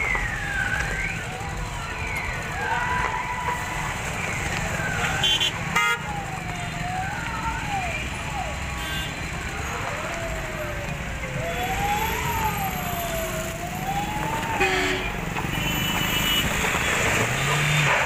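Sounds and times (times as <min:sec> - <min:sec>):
siren wailing up and down: 0:00.0 - 0:15.4
road traffic noise: 0:00.0 - 0:18.0
vehicle horn toot: 0:05.2 - 0:06.0.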